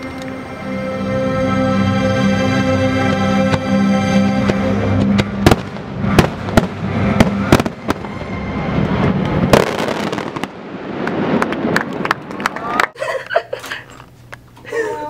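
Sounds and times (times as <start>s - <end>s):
held chord of show music: 0.0s - 10.2s
fireworks exploding: 4.4s - 12.4s.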